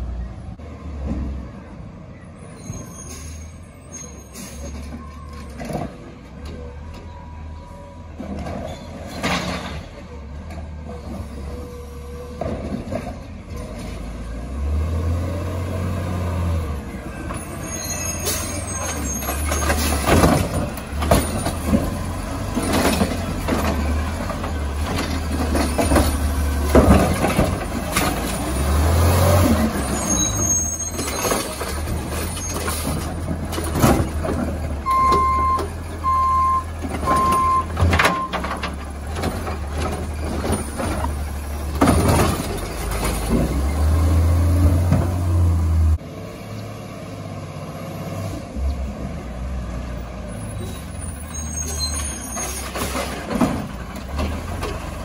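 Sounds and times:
recyclables crashing into truck: 18.3 - 28.5, 30.9 - 34.7, 36.8 - 43.7
backup beeps: 34.8 - 38.4.

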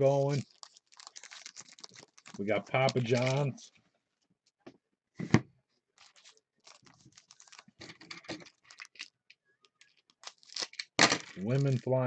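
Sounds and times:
foil wrapper crinkling and tearing: 0.1 - 3.5, 6.0 - 9.1, 9.8 - 12.0.

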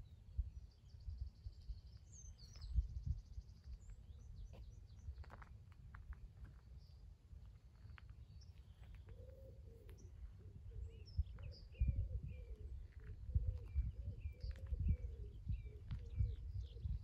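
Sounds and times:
wind on microphone: 2.4 - 3.5, 10.4 - 17.0
birds chirping: 7.8 - 17.0.

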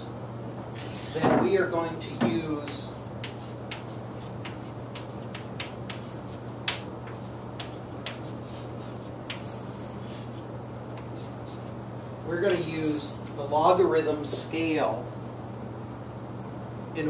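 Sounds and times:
steady low hum: 0.0 - 17.0
chalk tapping on chalkboard: 2.6 - 10.4, 11.0 - 11.7.

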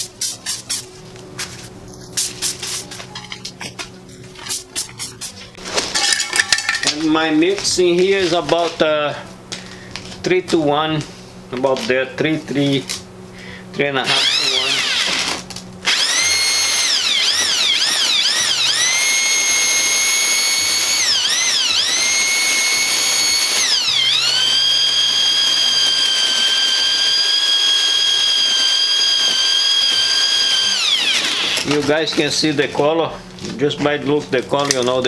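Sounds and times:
drill mixer motor whine: 14.0 - 32.1.

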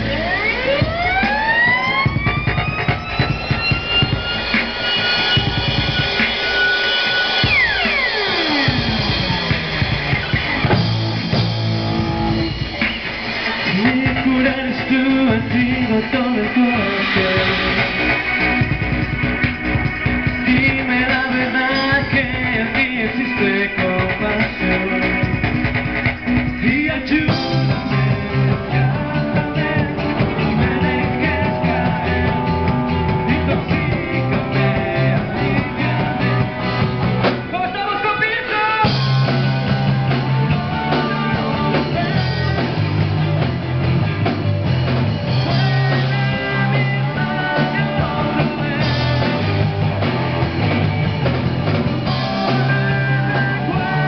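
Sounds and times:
bass guitar: 0.0 - 54.0
drum kit: 0.0 - 54.0
electric guitars: 0.0 - 54.0
man singing: 13.6 - 18.3, 20.2 - 25.5, 26.5 - 43.4, 45.2 - 50.1, 52.0 - 54.0.

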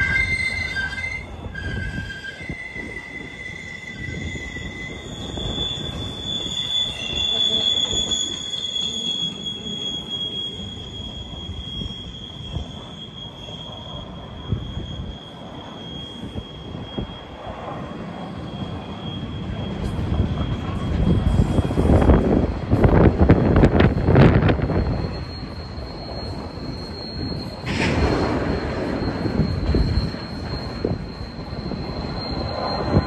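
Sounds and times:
low rumble of train cars: 0.0 - 33.0
train wheels squealing on rails: 0.0 - 33.0.

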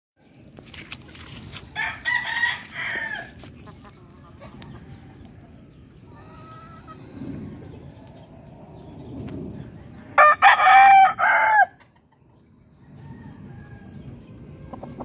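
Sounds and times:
rooster crowing: 1.8 - 3.4, 10.2 - 11.8, 12.8 - 14.1.

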